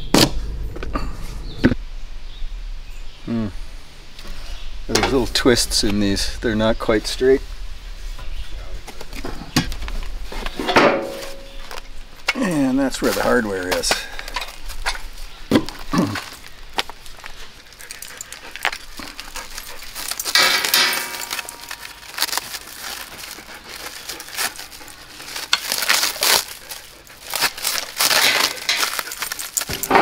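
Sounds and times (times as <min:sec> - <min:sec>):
plastic bag crinkling: 0:15.8 - 0:29.9
metal bolts clinking: 0:20.2 - 0:22.0, 0:28.2 - 0:30.0.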